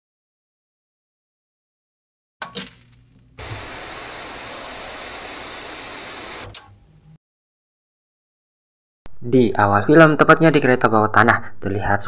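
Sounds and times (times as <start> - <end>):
tv static hiss: 3.4 - 6.5
television switch click: 6.3 - 6.8.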